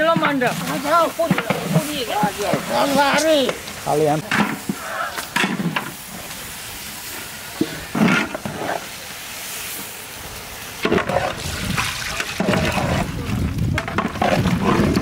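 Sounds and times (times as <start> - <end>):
frying sizzle: 0.0 - 15.0
ladle scraping metal pot: 10.8 - 15.0.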